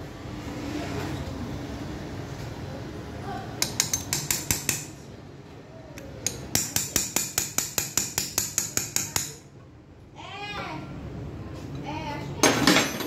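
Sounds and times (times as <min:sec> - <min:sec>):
steel tool tapping on metal: 0:03.6 - 0:05.0, 0:06.0 - 0:09.4.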